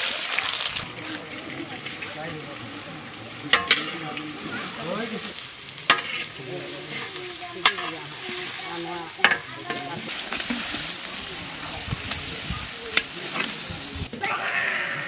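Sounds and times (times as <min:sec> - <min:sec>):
onions sizzling in hot oil: 0:00.0 - 0:14.9
metal ladle clanking on pan: 0:03.4 - 0:04.2, 0:05.8 - 0:06.4, 0:07.6 - 0:08.0, 0:09.2 - 0:10.4.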